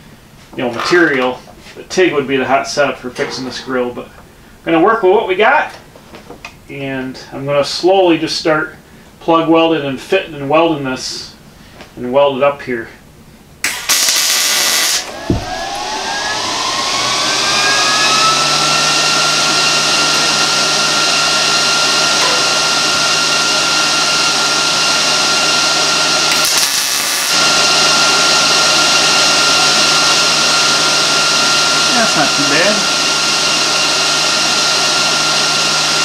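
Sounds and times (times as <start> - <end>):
electric motor whining: 14.0 - 35.9
loud rushing noise: 19.6 - 25.3.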